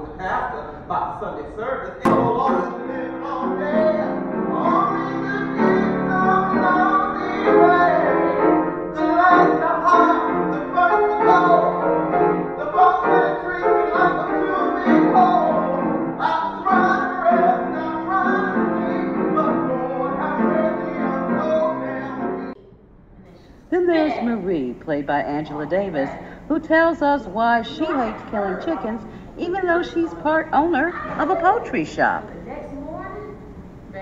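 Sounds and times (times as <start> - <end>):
piano accompaniment: 2.0 - 22.6
man singing blues: 2.1 - 8.4, 9.0 - 22.5.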